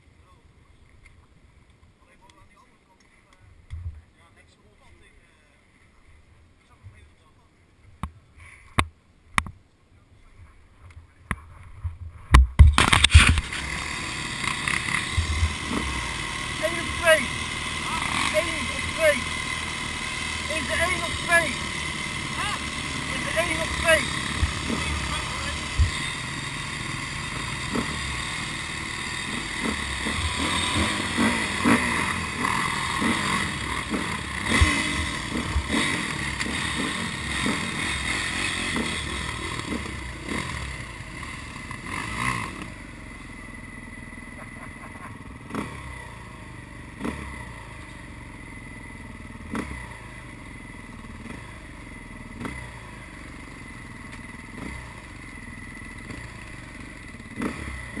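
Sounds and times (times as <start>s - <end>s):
off-road vehicle engines running: 10.2s - 58.0s.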